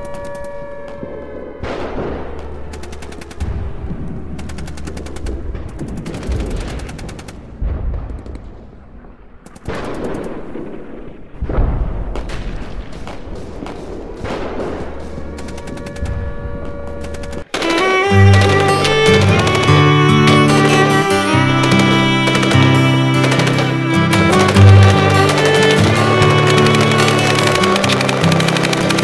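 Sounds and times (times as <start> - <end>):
automatic gunfire bursts: 21.6 - 29.0.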